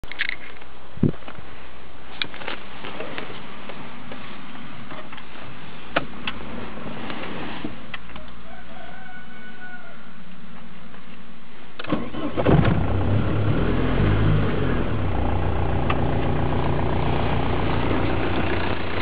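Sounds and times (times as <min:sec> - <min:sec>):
steady background hiss: 0:00.1 - 0:19.0
rooster crowing faintly: 0:08.1 - 0:10.2.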